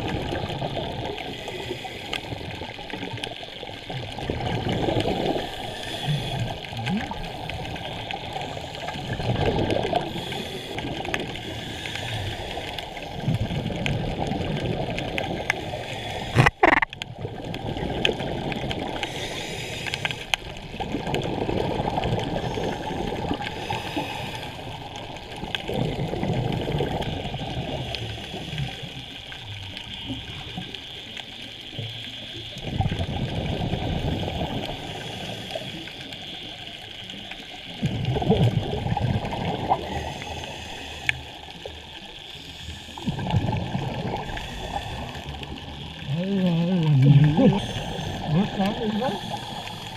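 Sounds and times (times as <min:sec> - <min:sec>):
exhaled bubbles rushing: 0:00.0 - 0:19.2, 0:20.4 - 0:30.8, 0:32.5 - 0:35.3, 0:37.6 - 0:42.2, 0:42.8 - 0:49.9
diver breathing through regulator: 0:05.2 - 0:06.7, 0:09.9 - 0:13.2, 0:15.5 - 0:16.9, 0:18.9 - 0:20.4, 0:22.3 - 0:25.0, 0:39.6 - 0:41.6, 0:42.2 - 0:46.2, 0:46.8 - 0:49.9.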